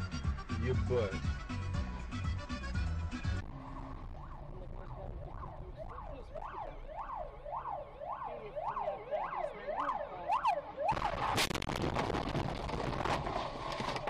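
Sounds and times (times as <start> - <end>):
ambulance siren: 3.6 - 11.6
sudden loud noise: 10.8 - 13.3.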